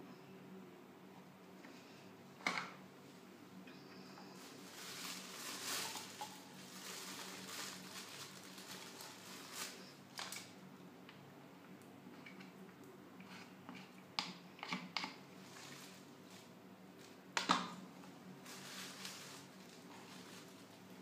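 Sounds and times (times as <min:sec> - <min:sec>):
rustling of hair accessories: 0:04.2 - 0:10.6, 0:15.4 - 0:17.2, 0:18.0 - 0:21.0
plastic bottle being handled: 0:04.4 - 0:10.4.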